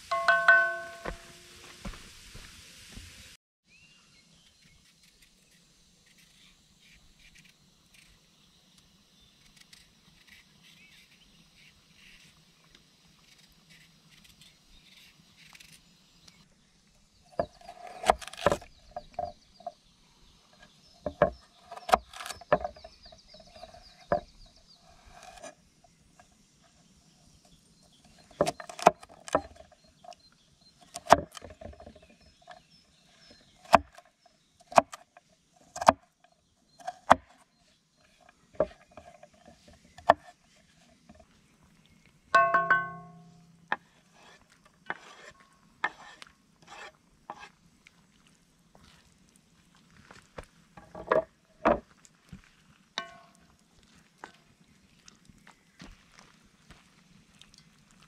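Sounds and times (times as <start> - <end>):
knife scraping carrot: 24.8 - 25.6, 43.8 - 47.5.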